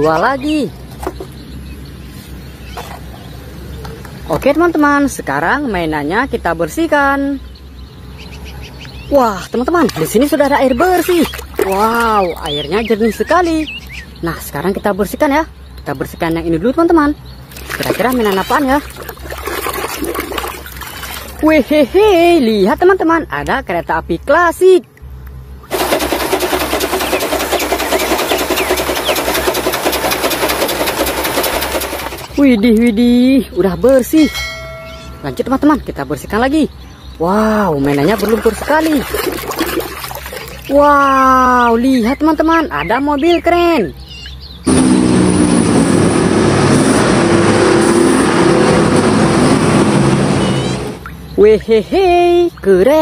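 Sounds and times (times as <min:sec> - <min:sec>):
road and traffic noise: 0:00.0 - 0:25.7, 0:32.1 - 0:53.0
heavy diesel engine: 0:25.7 - 0:32.4, 0:44.7 - 0:51.0
steam locomotive chuffing: 0:25.7 - 0:32.4.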